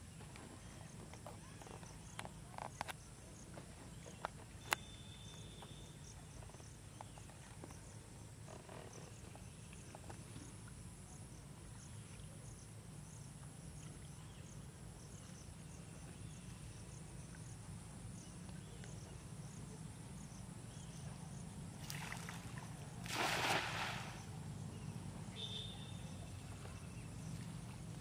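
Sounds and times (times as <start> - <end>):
net splashing into water: 21.8 - 24.3.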